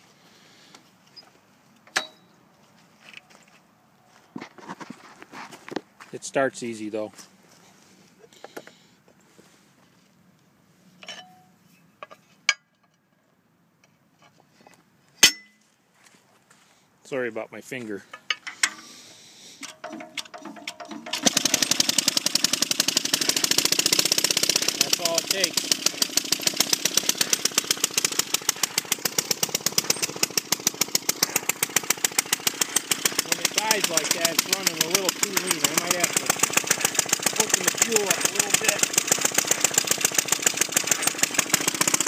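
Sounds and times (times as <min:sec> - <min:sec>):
two-stroke engine popping: 0:19.7 - 0:42.0.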